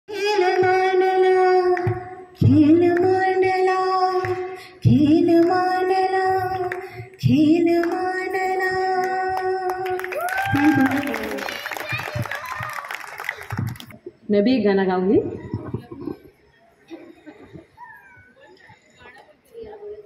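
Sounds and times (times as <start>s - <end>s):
breaths: 4.4s - 4.8s, 6.8s - 7.2s.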